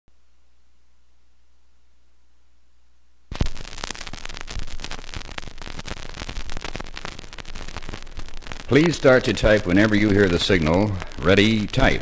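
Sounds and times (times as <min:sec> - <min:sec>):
record hiss: 0:00.1 - 0:12.0
vinyl crackle and pops: 0:03.2 - 0:12.0.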